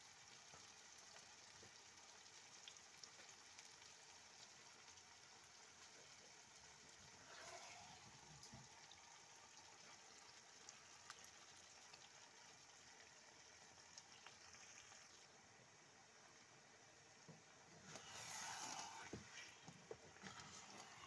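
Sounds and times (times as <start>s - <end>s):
frying pan sizzling: 0.0s - 15.3s.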